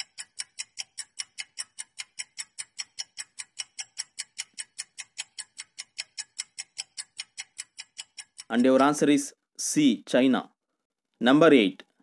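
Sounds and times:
clock-like timer ticking: 0.0 - 9.3.

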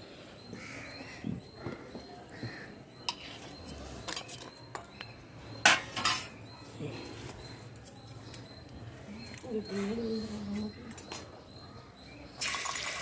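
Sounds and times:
steel ladle clinking and scraping: 3.0 - 5.0.

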